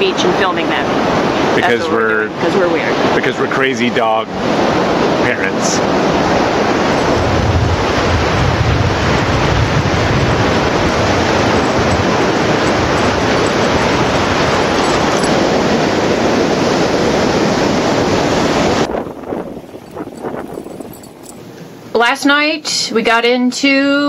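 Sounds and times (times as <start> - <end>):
ocean surf breaking: 0.3 - 20.5
wind on microphone: 4.4 - 21.4.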